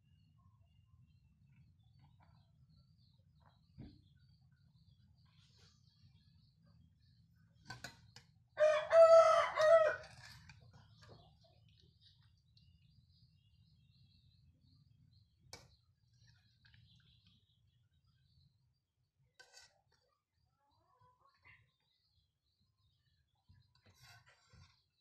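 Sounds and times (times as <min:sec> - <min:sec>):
rooster crowing: 0:08.6 - 0:10.2.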